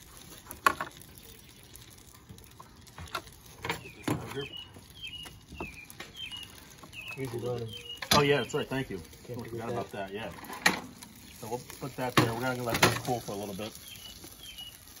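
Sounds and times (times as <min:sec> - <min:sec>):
small bird chirping: 0:03.5 - 0:09.8, 0:13.4 - 0:15.0.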